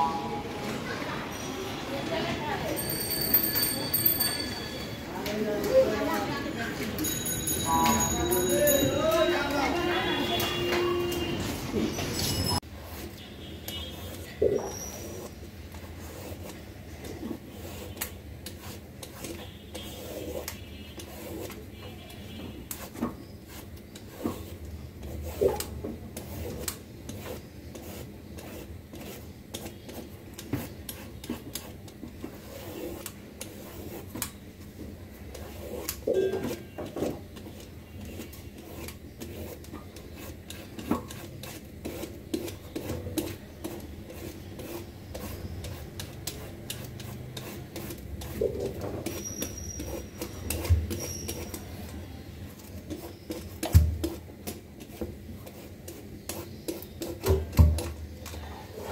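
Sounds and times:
blade scraping gourd skin: 0:17.2 - 0:21.8, 0:35.3 - 0:52.0.

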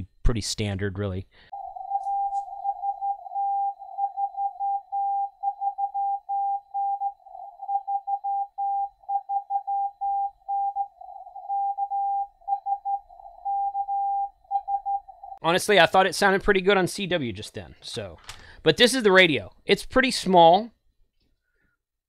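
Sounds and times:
morse code tone: 0:01.5 - 0:15.4.

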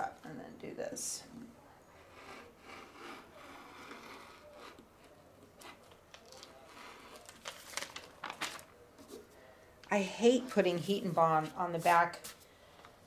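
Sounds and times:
rotary cutter cutting fabric: 0:02.1 - 0:04.8.

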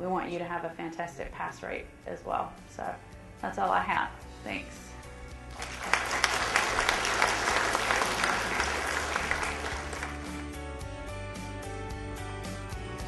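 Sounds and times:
music: 0:00.0 - 0:13.0
audience applauding: 0:05.5 - 0:10.6.

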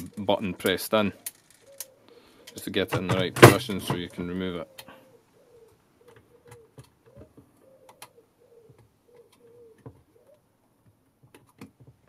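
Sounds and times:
pigeon cooing: 0:01.1 - 0:02.2, 0:04.0 - 0:10.5.

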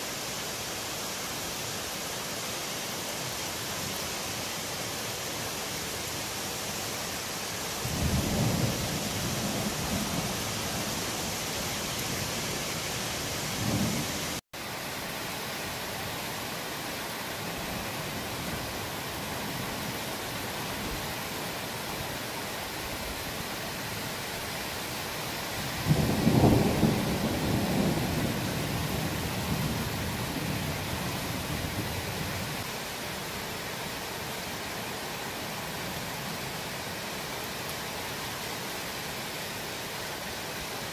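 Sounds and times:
rain hissing: 0:00.0 - 0:40.9
thunder rumbling: 0:25.8 - 0:30.8.

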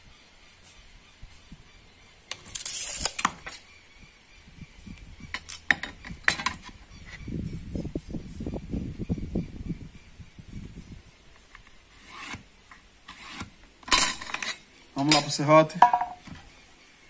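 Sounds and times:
tape measure retracting: 0:02.3 - 0:03.6, 0:11.4 - 0:12.5, 0:13.1 - 0:14.7.

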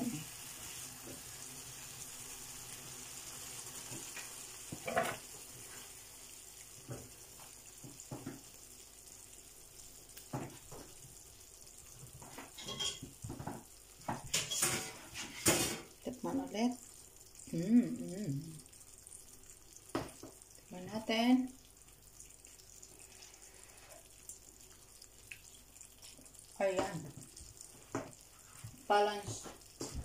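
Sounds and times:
food sizzling in a frying pan: 0:00.0 - 0:30.0
spatula scraping a pan: 0:14.3 - 0:15.7.

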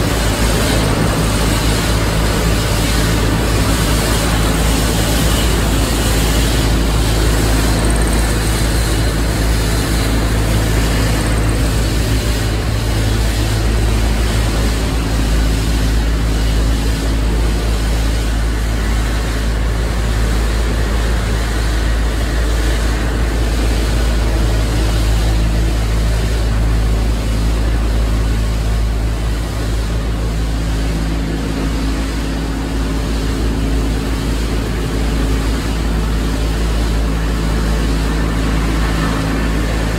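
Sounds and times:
machine drone with low hum: 0:00.0 - 0:39.9.

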